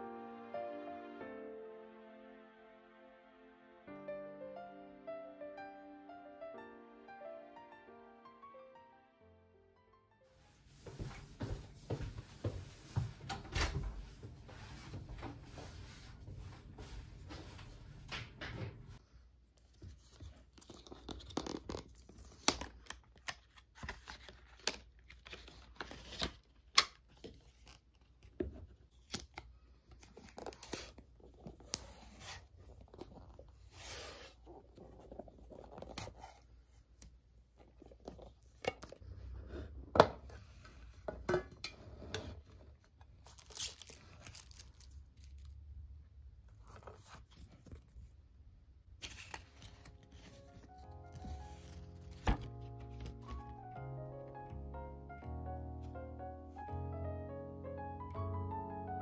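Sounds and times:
wrapping paper tearing and rustling: 43.2s - 45.6s, 49.0s - 53.3s.

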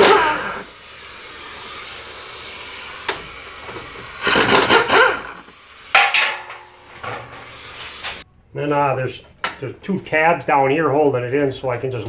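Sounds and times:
hand ratchet clicking: 4.2s - 5.4s.

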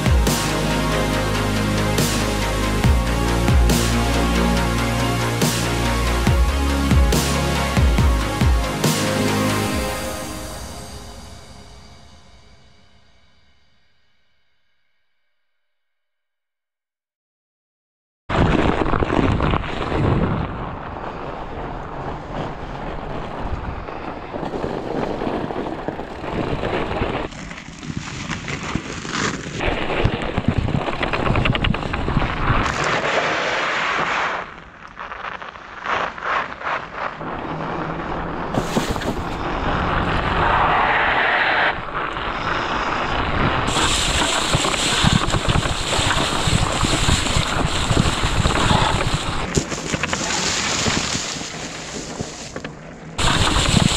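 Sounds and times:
bike tyres rolling over snow: 18.3s - 53.9s
wind rushing over microphone: 37.2s - 52.6s, 53.2s - 53.9s.

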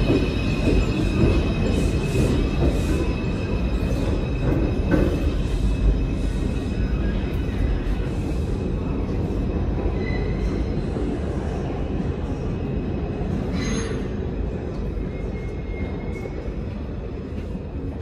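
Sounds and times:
subway train wheels rumbling: 0.0s - 18.0s
faint wheel squeal: 9.8s - 10.8s, 13.4s - 14.3s.

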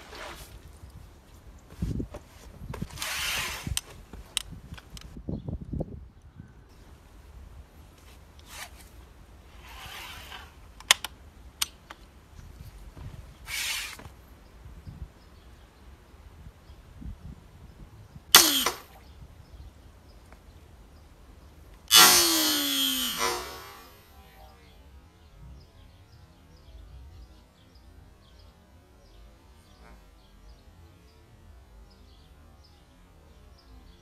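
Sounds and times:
rifle handling clicks and rustles: 10.8s - 12.1s
slingshot rifle snap: 18.4s - 19.0s.

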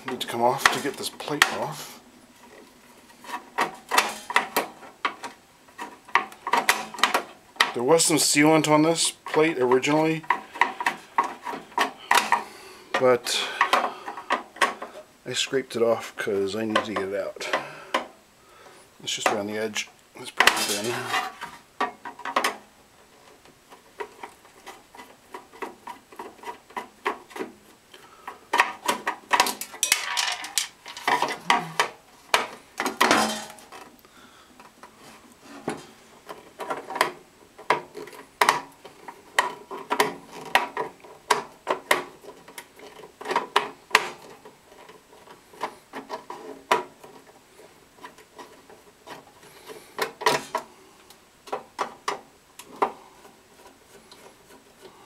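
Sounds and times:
metal tool scraping sheet metal: 3.0s - 4.8s.

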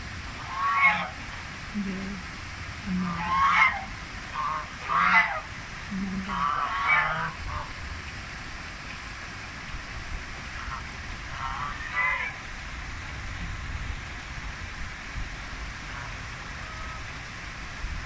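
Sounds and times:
running water rushing: 0.0s - 18.0s
geese honking: 4.4s - 5.4s, 6.3s - 7.7s, 11.4s - 12.4s.

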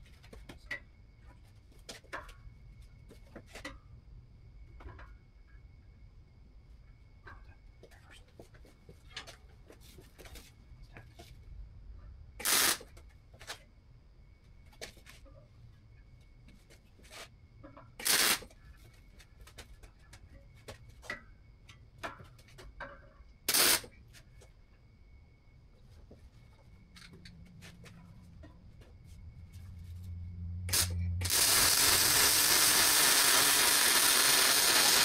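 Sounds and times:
welding arc crackle: 12.4s - 12.8s, 18.0s - 18.5s, 23.5s - 23.9s, 30.7s - 35.0s.

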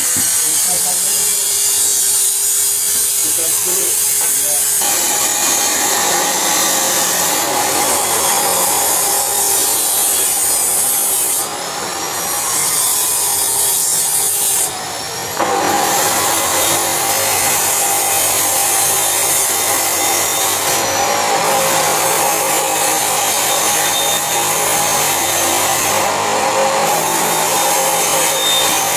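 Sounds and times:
gas welding torch flame hissing: 0.0s - 28.9s.

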